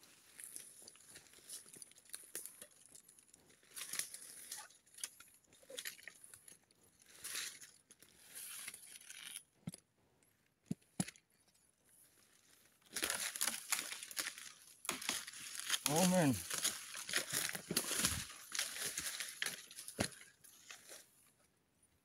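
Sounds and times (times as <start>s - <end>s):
footsteps rustling through dry leaves: 12.9s - 21.1s.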